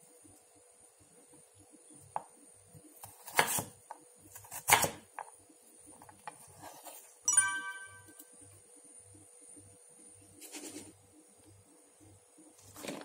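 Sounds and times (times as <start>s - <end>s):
knife chopping carrot on board: 3.0s - 5.3s.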